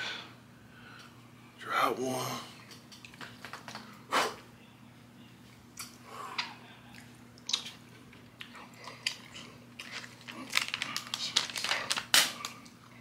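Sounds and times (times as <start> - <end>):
steady low hum: 0.0 - 13.0
wet chewing smacks: 5.8 - 10.3.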